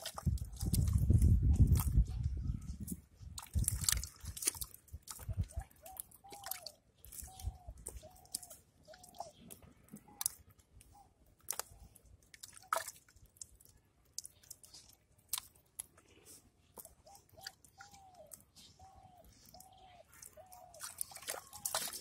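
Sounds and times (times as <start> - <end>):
hand squelching in wet mud: 0.0 - 2.2, 2.9 - 22.0
wet sucking clicks and smacks: 3.4 - 18.6.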